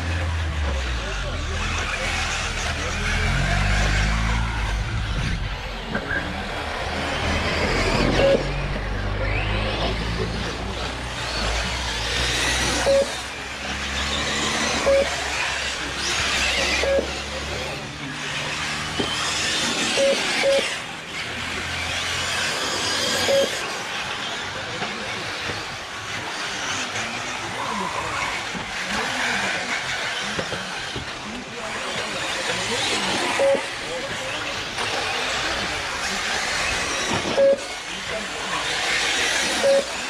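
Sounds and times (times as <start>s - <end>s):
model car motors whining: 0.0s - 40.0s
short electronic beeps: 7.9s - 9.4s, 12.7s - 13.4s, 14.7s - 15.2s, 16.8s - 17.2s, 19.9s - 20.7s, 23.2s - 23.7s, 33.3s - 33.8s, 37.3s - 37.7s, 39.6s - 40.0s.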